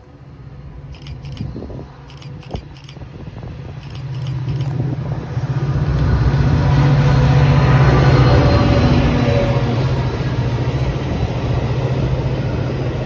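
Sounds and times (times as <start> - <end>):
diesel locomotive passing: 0.0 - 13.0
rapid faint clicking: 0.9 - 1.5, 2.1 - 3.0, 3.8 - 4.8.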